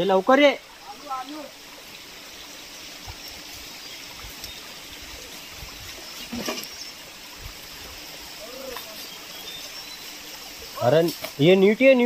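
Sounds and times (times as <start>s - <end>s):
stream trickling: 0.0s - 12.0s.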